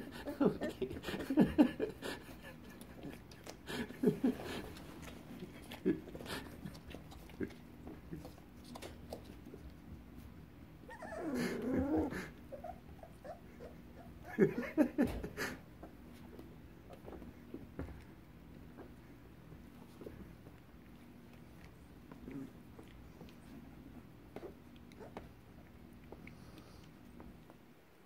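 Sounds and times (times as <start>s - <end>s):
puppy whining: 10.8s - 14.4s, 21.6s - 25.4s
puppies yelping: 10.9s - 14.3s.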